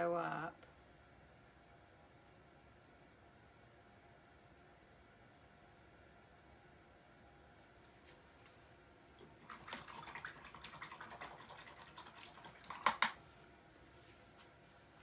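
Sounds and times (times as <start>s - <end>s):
brush clicking against cup: 12.6s - 13.2s.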